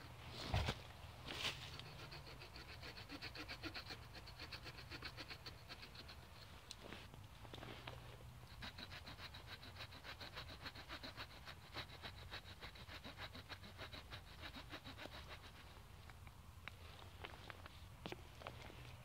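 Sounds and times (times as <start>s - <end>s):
small saw blade sawing wood: 1.3s - 6.7s, 8.4s - 16.0s.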